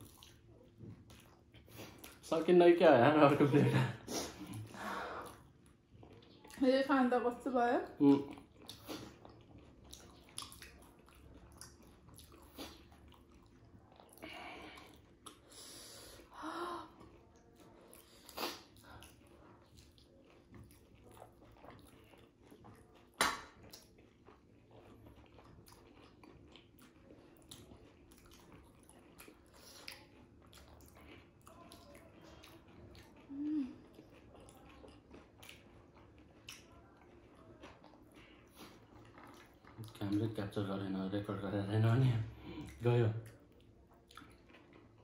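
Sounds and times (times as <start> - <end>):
people chewing with wet clicks: 0.0 - 45.0
food crunching: 8.0 - 15.5, 17.0 - 40.7, 42.6 - 45.0.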